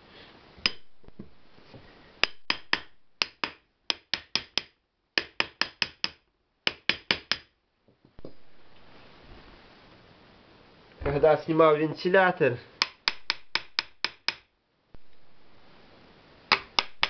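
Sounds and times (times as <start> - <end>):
hammer knocking on motor end cap: 2.2 - 7.5.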